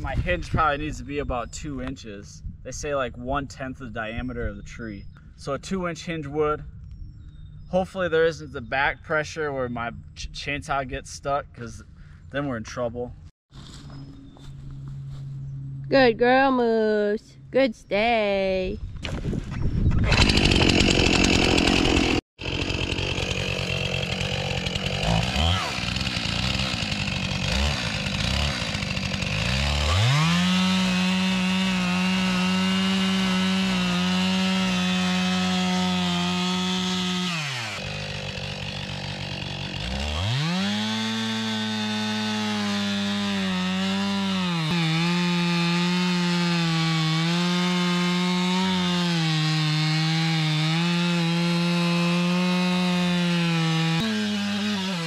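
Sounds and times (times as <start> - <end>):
chainsaw cutting wood: 19.9 - 55.0.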